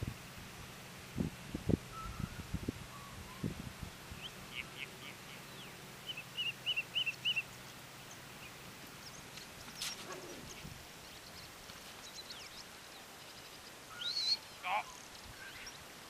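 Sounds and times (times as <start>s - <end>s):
bird chirping and whistling: 1.9s - 3.5s, 6.1s - 7.4s, 13.9s - 14.5s.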